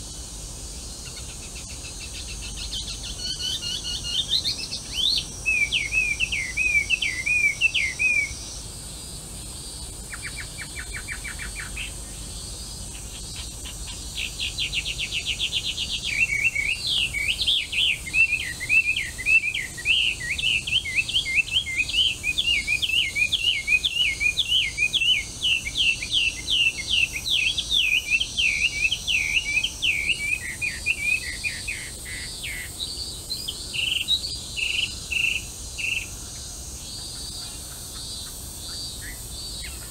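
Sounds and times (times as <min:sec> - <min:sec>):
insects droning: 0:00.0 - 0:39.9
bird singing whistled phrases: 0:02.5 - 0:08.4, 0:14.2 - 0:31.9.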